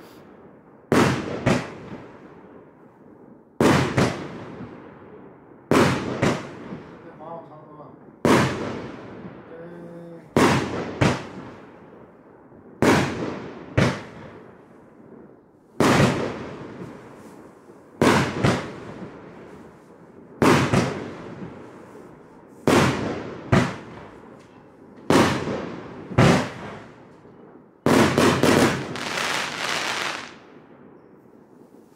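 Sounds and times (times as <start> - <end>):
fireworks bangs: 0.0 - 2.7, 3.6 - 31.9.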